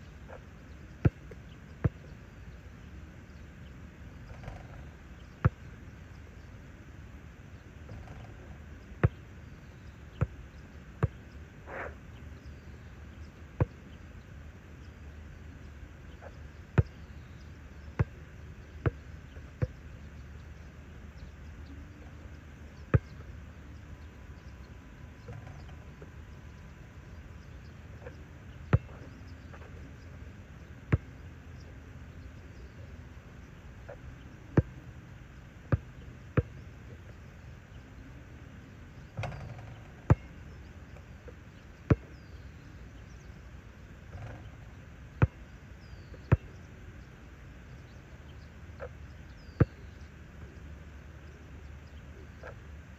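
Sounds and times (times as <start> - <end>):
low outdoor background: 0.0 - 52.9
basketball bouncing on court: 22.9 - 23.1, 39.2 - 40.3.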